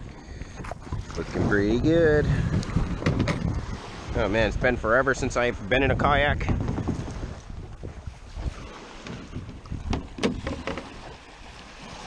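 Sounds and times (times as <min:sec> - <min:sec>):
wind rumbling on microphone: 0:00.0 - 0:12.0
gear knocking against kayak: 0:02.6 - 0:03.6, 0:06.4 - 0:07.9, 0:09.0 - 0:11.2.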